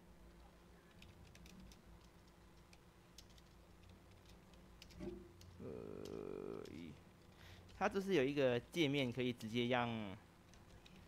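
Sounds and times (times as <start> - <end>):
computer keyboard typing: 0.3 - 7.8.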